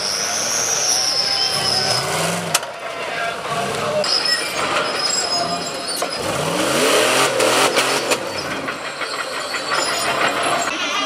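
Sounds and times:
engine revving hard: 6.2 - 8.2.

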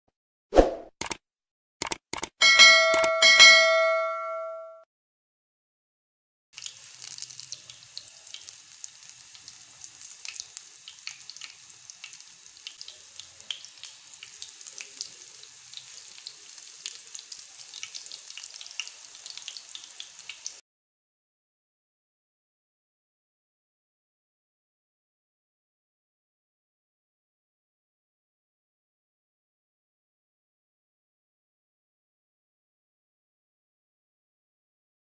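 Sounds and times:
food deep-frying in hot oil: 6.6 - 20.6.

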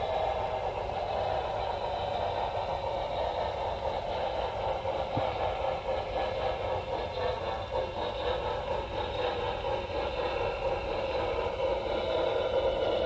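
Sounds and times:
model train running on track: 0.0 - 13.0
click: 5.1 - 5.4.

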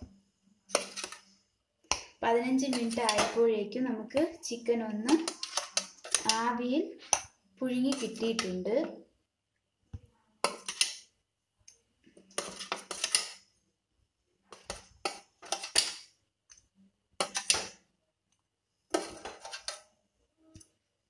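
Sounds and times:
fork scraping on steel steamer plate: 0.7 - 1.3, 10.4 - 11.0, 12.3 - 13.4, 14.5 - 16.1, 17.2 - 17.7, 18.9 - 19.8.

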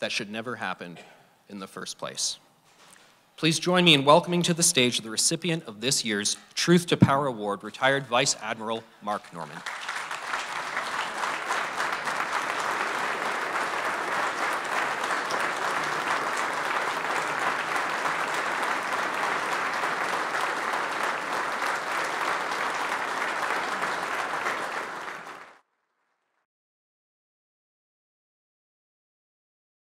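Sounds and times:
audience applause: 9.4 - 25.6.

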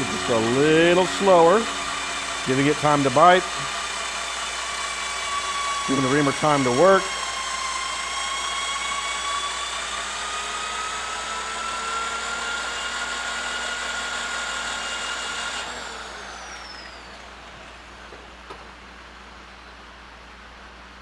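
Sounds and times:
electric drill whining: 0.0 - 18.4.

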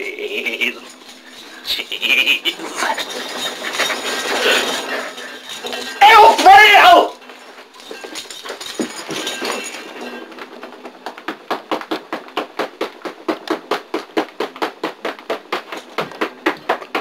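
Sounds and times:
rapid even taps: 10.4 - 17.0.

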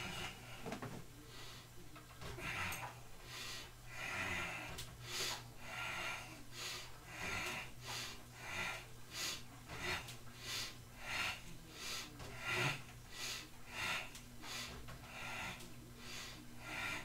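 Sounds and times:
man breathing hard: 0.0 - 17.0.

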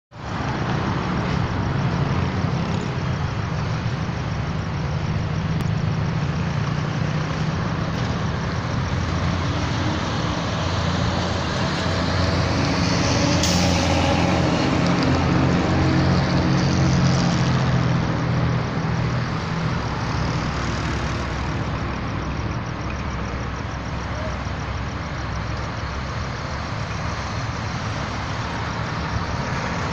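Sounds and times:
road traffic engine hum: 0.1 - 29.9
air-brake hiss: 13.3 - 14.1.

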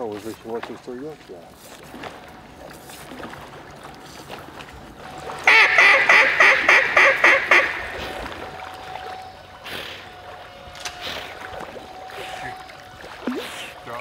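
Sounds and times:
duck quacking: 5.5 - 8.2.

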